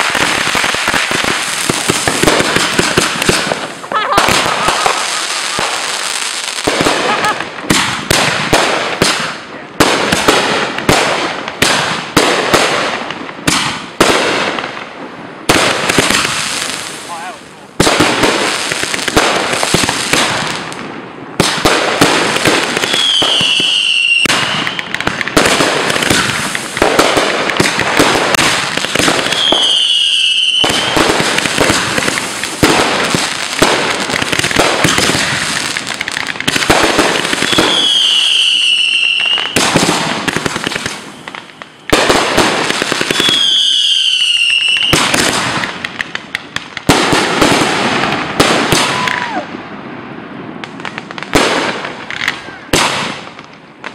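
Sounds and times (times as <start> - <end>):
fireworks cracking and popping: 0.0 - 53.9
firework whistles: 22.7 - 25.0, 29.2 - 32.4, 37.3 - 42.2, 43.0 - 45.2.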